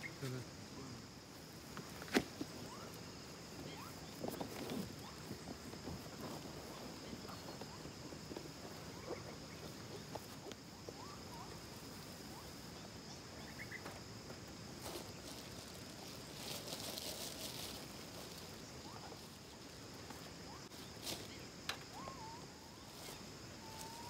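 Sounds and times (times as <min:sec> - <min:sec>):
insect drone: 0:00.0 - 0:24.0
camping gear rustling: 0:01.4 - 0:12.0, 0:12.8 - 0:24.0
bird chirps: 0:02.6 - 0:05.4, 0:10.8 - 0:11.6, 0:12.3 - 0:13.9, 0:20.4 - 0:24.0.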